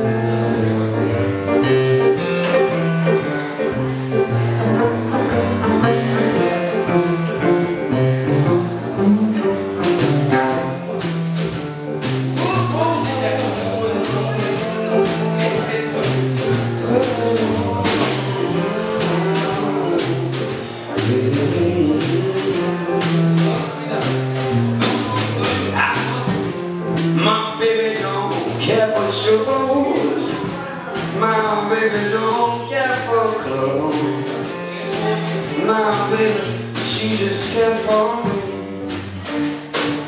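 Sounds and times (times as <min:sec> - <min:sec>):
electric keyboard chords: 0:00.0 - 0:27.2
drum kit and cymbals: 0:00.0 - 0:40.0
walking bass line: 0:00.0 - 0:40.0.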